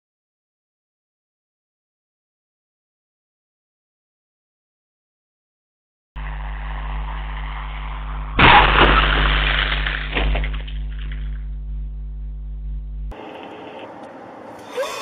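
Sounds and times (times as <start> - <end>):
vehicle crash: 6.2 - 11.4
electrical hum: 6.2 - 14.6.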